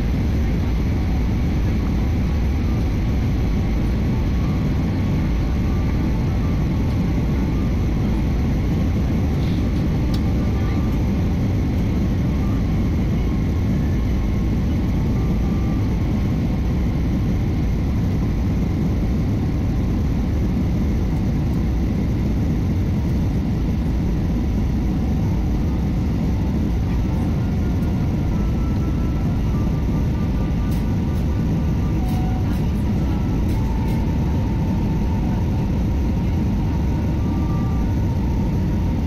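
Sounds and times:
jet engines and airflow rushing: 0.0 - 39.0
faint steady tones: 21.1 - 39.0.

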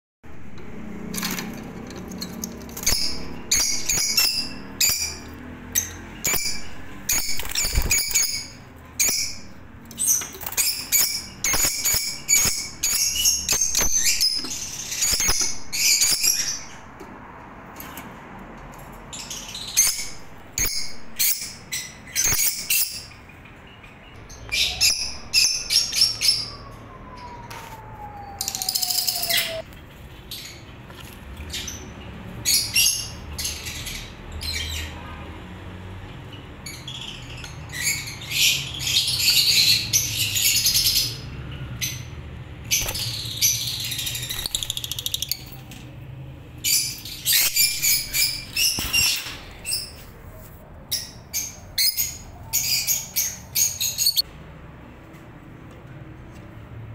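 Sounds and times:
lovebirds chirping: 0.3 - 17.0, 19.1 - 35.1, 46.6 - 54.3.

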